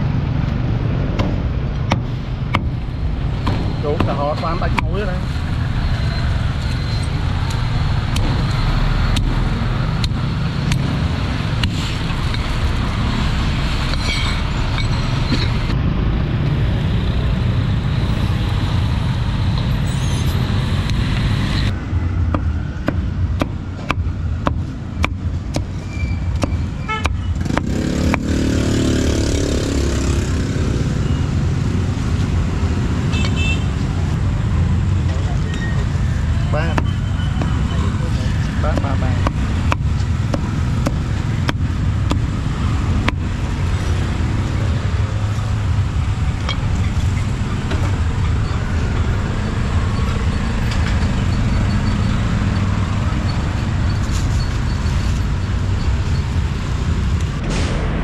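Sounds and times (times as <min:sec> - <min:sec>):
street traffic noise: 0:00.0 - 0:58.0
cleaver chopping on wooden block: 0:26.4 - 0:28.4, 0:38.7 - 0:42.3, 0:43.0 - 0:43.3
car horns tooting: 0:26.8 - 0:27.5, 0:33.1 - 0:33.8.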